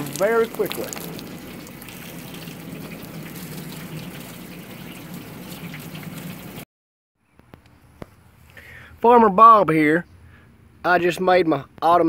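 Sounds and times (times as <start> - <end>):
water pouring into plastic bucket: 0.0 - 6.6.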